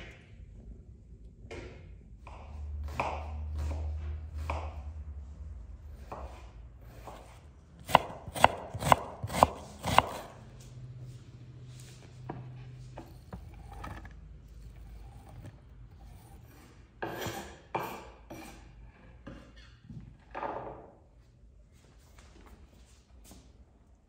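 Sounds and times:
scraping on wooden cutting board: 6.1 - 10.4, 12.4 - 18.8.

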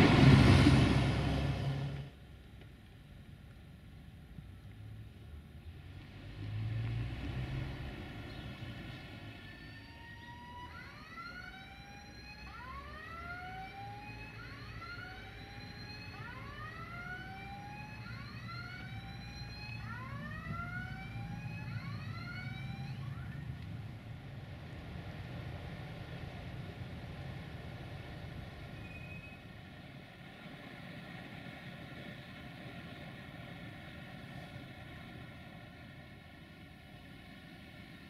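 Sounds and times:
freight train rumble: 0.0 - 2.3
siren wailing: 9.3 - 23.6.

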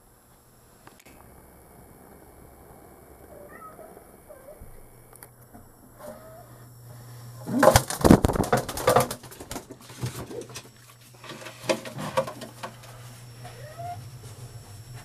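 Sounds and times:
pigeon wing flaps: 7.4 - 10.8.

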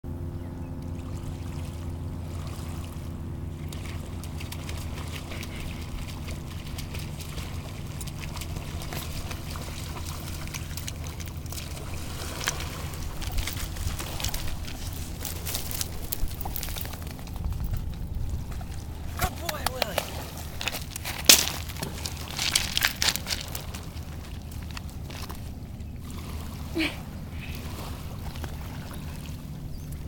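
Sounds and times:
steady low drone: 0.1 - 19.2
dog splashing through water: 3.5 - 17.3.

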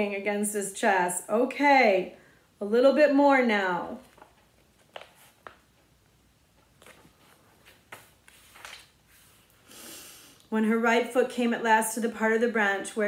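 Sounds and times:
book pages rustling: 4.0 - 5.9, 6.5 - 9.6
breath drawn in: 9.1 - 10.4.

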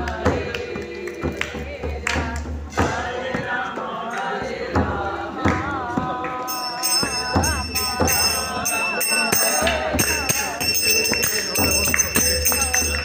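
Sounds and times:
group singing chant: 0.0 - 13.0
sharp percussion beats: 0.0 - 13.0
high jingling: 6.5 - 13.0.

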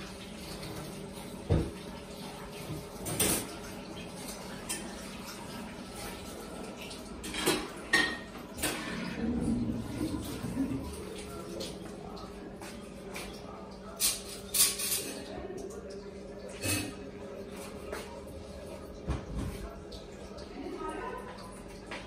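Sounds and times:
kitchenware clinking: 2.6 - 5.4, 7.2 - 11.9, 14.0 - 15.4, 16.5 - 17.1.

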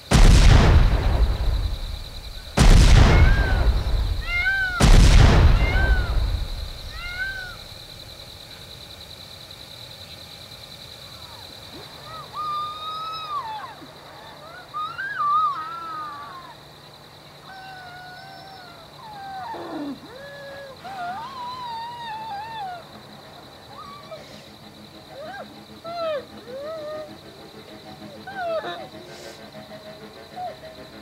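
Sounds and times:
deep booms: 0.0 - 7.6
short chirping calls: 0.2 - 7.7.

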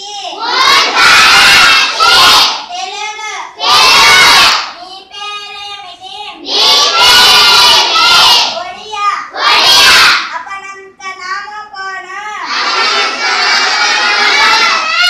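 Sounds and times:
children reciting in chorus: 0.0 - 10.3, 12.4 - 15.0
child reading out: 2.7 - 3.6, 4.7 - 6.5, 8.6 - 9.4, 10.2 - 12.5.

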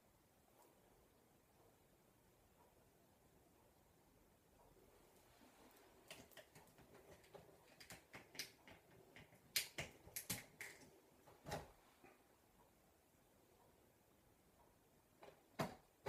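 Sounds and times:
faint clicks and taps: 4.6 - 12.8.

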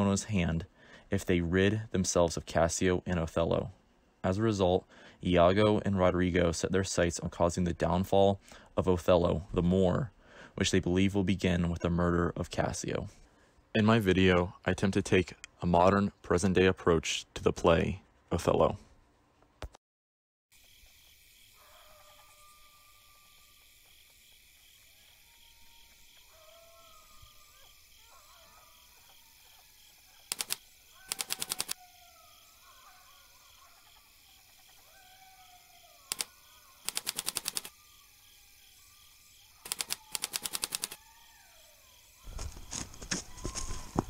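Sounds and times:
faint chirping: 21.4 - 44.0
text typing sound effect: 30.3 - 31.8, 36.1 - 37.7, 39.6 - 41.0.

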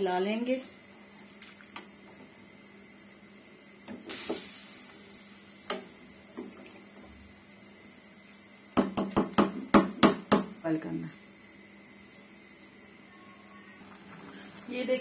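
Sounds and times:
hiss: 4.0 - 5.8.

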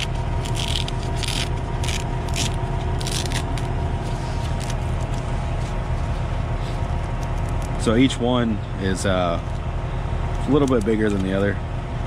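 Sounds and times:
velcro strips ripping: 0.0 - 5.3, 6.7 - 7.8
steady low hum: 0.0 - 12.0.

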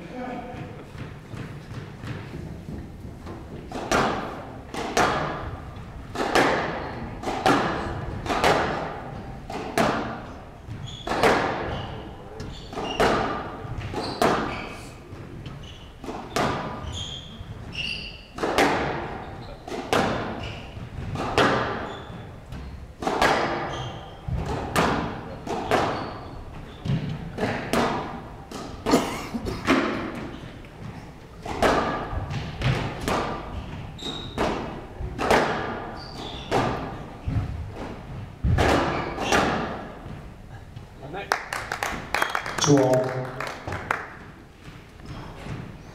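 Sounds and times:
squash ball hitting rackets and walls: 0.4 - 29.0, 29.6 - 40.4, 43.6 - 45.9
shoe squeaks on court: 10.7 - 13.2, 13.8 - 18.4, 19.2 - 19.7, 20.4 - 20.8, 21.8 - 22.8, 23.6 - 24.3, 25.6 - 27.0, 34.0 - 34.5, 35.9 - 36.6, 38.9 - 39.5.

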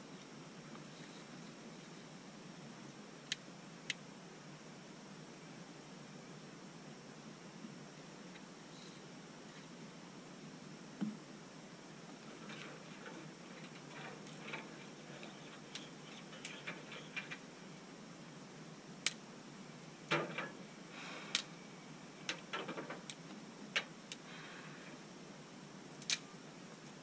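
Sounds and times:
fire crackling with pops and snaps: 19.0 - 19.3, 22.2 - 24.3, 26.0 - 27.0.

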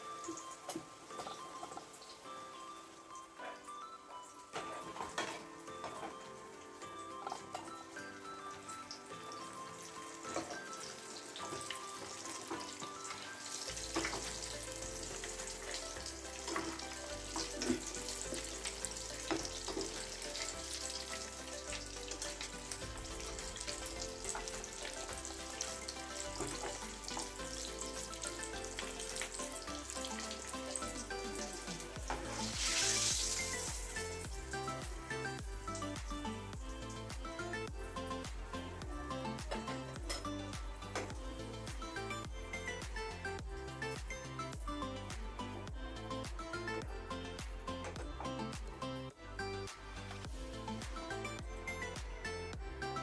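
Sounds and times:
food deep-frying in oil: 0.0 - 39.7
background music: 0.0 - 53.0.

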